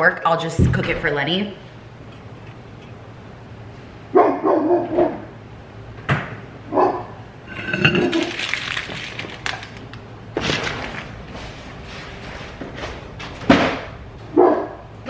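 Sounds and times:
dog barking: 4.1 - 5.2, 6.7 - 7.1, 14.3 - 14.8
things clattering on kitchen counter: 7.5 - 9.8.

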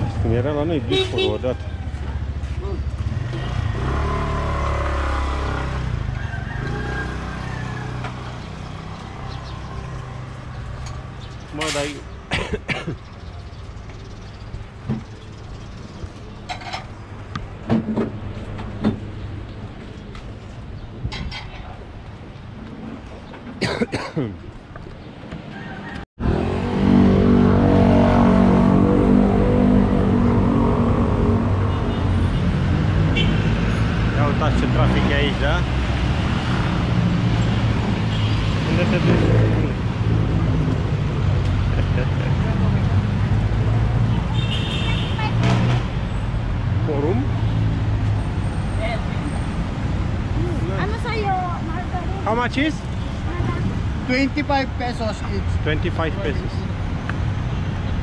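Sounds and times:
street traffic: 0.0 - 58.0
vehicle engine passing: 26.2 - 44.3.

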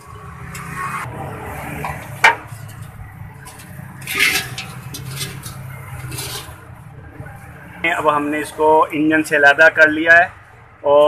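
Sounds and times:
metal rubbing and clinking: 1.8 - 6.7.

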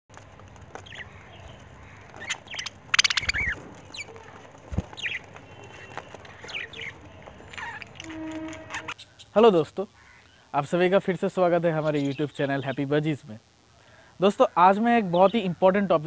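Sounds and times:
budgerigars chirping: 0.7 - 4.2, 4.9 - 8.1.

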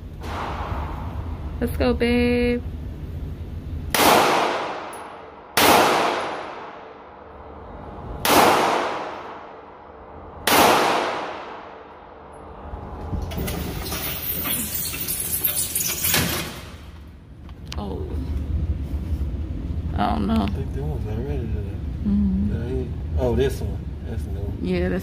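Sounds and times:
gunshots echoing: 0.2 - 1.5, 3.9 - 7.2, 8.2 - 12.3
dense rough noise: 0.2 - 2.4.

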